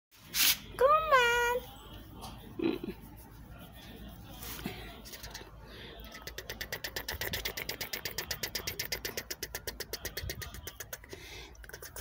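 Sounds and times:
fingers scratching cat fur: 0:02.2 - 0:11.0.

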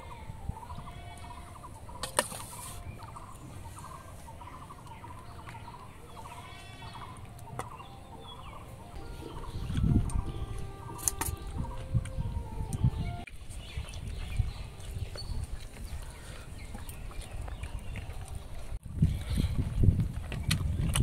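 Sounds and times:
chickens clucking: 0:00.5 - 0:13.2.

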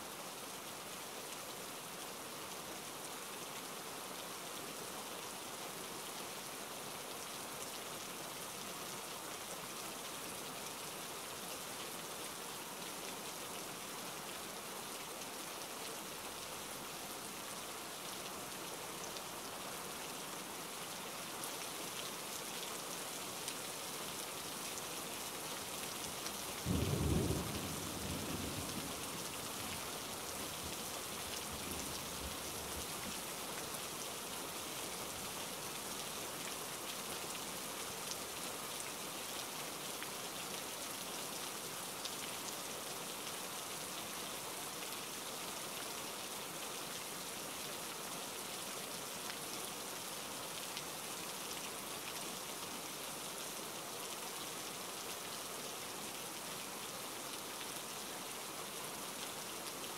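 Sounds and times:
rain falling on a puddle: 0:00.0 - 0:59.9
low rumble of thunder: 0:26.7 - 0:29.2.

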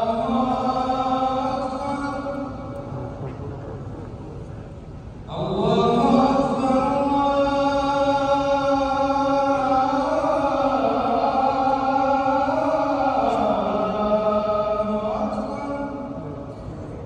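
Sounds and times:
man chanting devotional words: 0:05.3 - 0:17.0.

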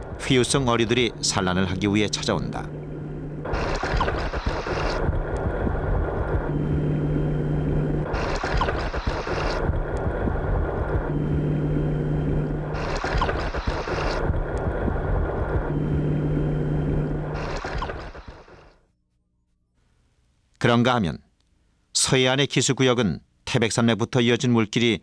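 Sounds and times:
continuous underwater rumble: 0:00.0 - 0:18.7
exhaled bubbles rumbling: 0:03.4 - 0:07.0, 0:08.0 - 0:18.2.

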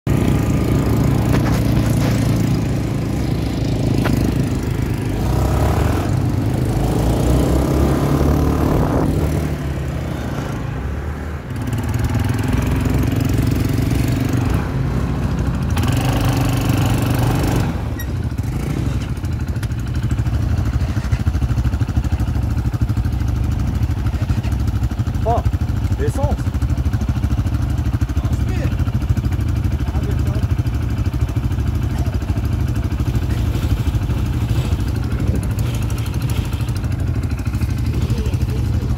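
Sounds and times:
quad bike engine revving: 0:00.1 - 0:38.9.

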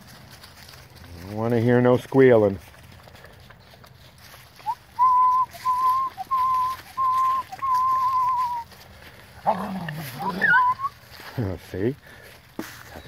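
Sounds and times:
person whistling: 0:04.6 - 0:08.7, 0:10.4 - 0:10.9.

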